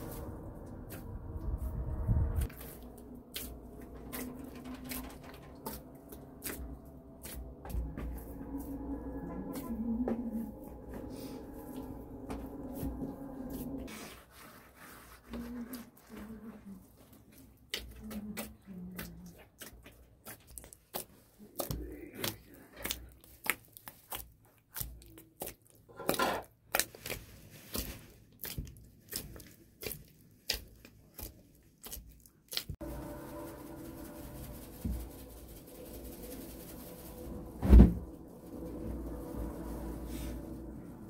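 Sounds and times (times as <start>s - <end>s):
hands kneading sticky dough: 2.4s - 8.3s, 13.8s - 37.0s
wet squelches and slaps: 17.5s - 25.9s, 26.6s - 32.8s.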